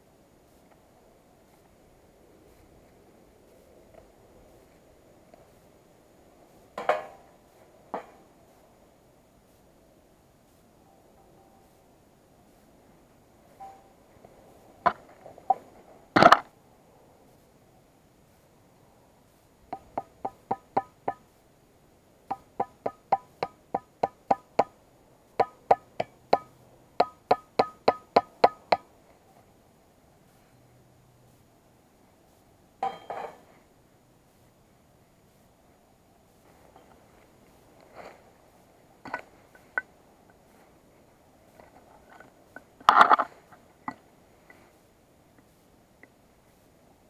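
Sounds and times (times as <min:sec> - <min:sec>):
hatchet striking wood: 0:27.0 - 0:28.8.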